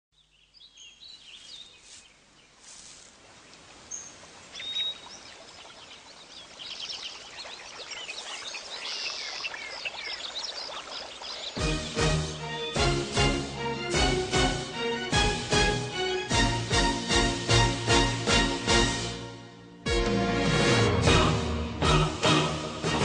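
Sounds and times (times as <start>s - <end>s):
birds chirping: 0.2s - 2.7s, 3.3s - 14.8s.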